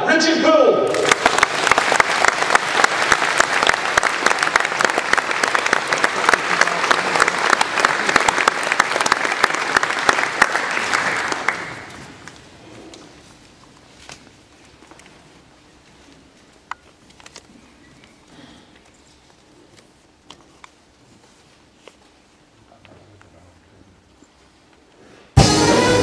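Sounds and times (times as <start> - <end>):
audience applauding: 0.8 - 12.3.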